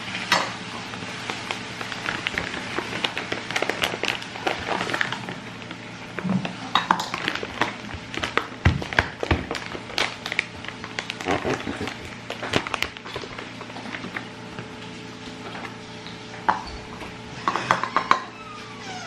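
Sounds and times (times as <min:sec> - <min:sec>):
plastic pouch crinkling: 0:00.8 - 0:14.8
plastic scoop scraping a bowl: 0:01.2 - 0:14.3.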